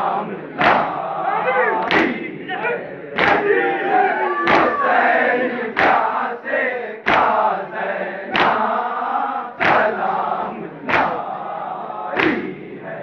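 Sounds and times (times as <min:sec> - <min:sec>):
men chanting together: 0:00.0 - 0:13.0
hands slapping chests: 0:00.6 - 0:01.0, 0:01.8 - 0:02.2, 0:03.2 - 0:03.5, 0:04.5 - 0:04.8, 0:05.7 - 0:06.1, 0:07.0 - 0:07.4, 0:08.3 - 0:08.8, 0:09.6 - 0:10.0, 0:10.8 - 0:11.3, 0:12.1 - 0:12.5.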